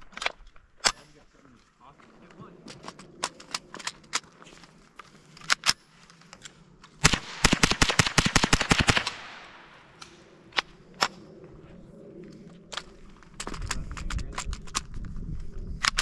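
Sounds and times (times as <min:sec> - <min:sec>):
rifle shots rapid fire: 0:07.0 - 0:09.9.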